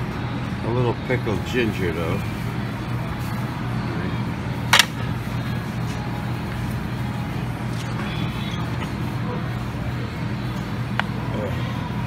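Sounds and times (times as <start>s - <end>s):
restaurant background hum: 0.0s - 12.0s.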